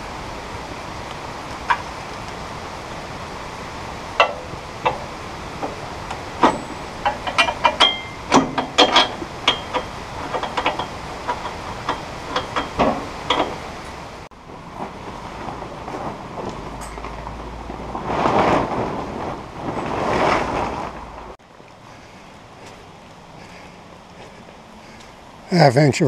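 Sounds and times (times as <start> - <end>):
bolts clinking against steel frame: 4.2 - 14.1.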